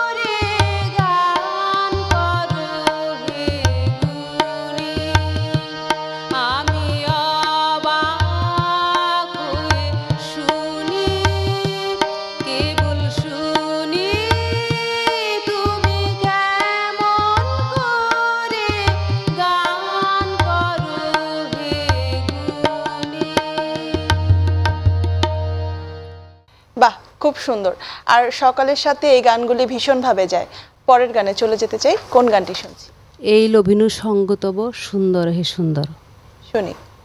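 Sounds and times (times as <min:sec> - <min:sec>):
woman singing: 0:00.0 - 0:24.7
tabla drumming: 0:00.0 - 0:26.2
harmonium chords: 0:00.0 - 0:26.5.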